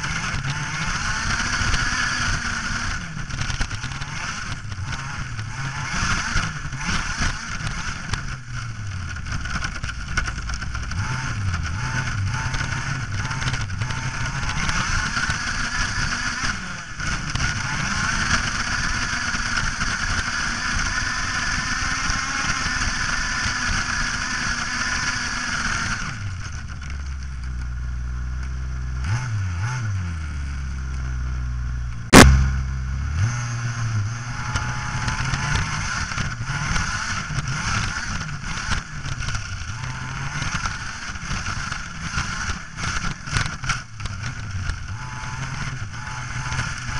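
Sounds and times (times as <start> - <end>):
sharp knock: 32.1 - 32.6.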